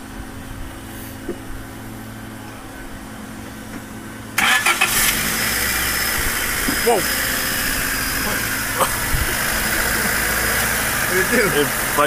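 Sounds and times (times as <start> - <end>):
car engine starting and idling: 4.2 - 12.0.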